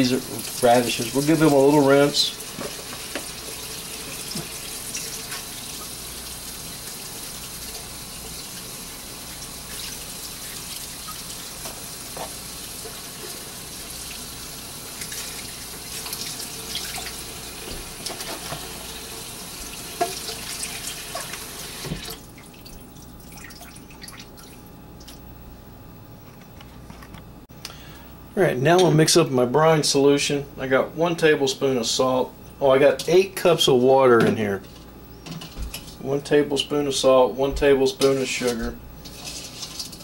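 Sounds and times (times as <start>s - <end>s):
water splashing and dripping: 20.0s - 25.2s.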